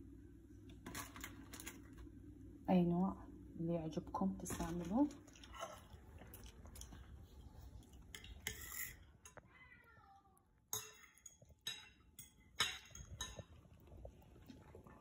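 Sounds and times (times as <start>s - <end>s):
cat meowing: 9.4s - 10.4s.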